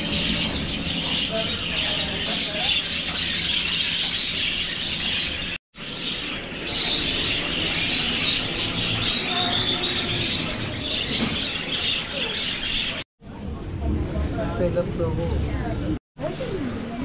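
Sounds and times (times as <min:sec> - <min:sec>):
budgerigars chattering: 0:00.0 - 0:13.0.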